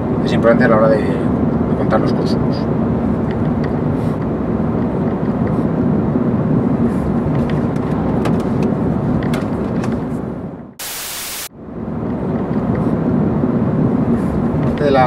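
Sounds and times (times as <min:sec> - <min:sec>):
car cabin road noise: 0:00.0 - 0:10.8.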